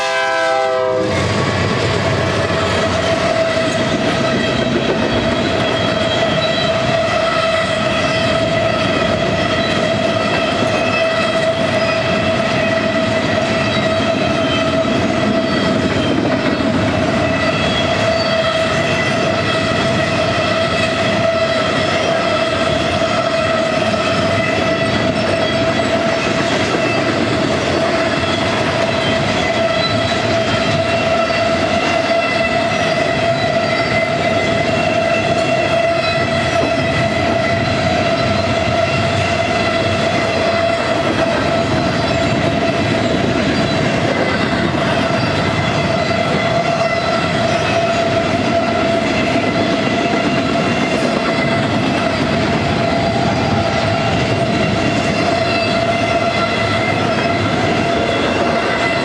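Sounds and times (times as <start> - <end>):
train passing: 0.0 - 59.0
high-pitched wheel squeal: 2.4 - 59.0.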